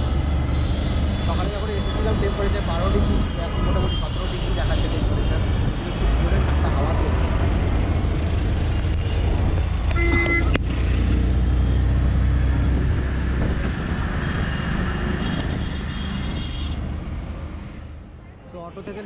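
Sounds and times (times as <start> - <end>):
road and traffic noise: 0.0 - 19.0
auto-rickshaw engine drone: 4.8 - 17.6.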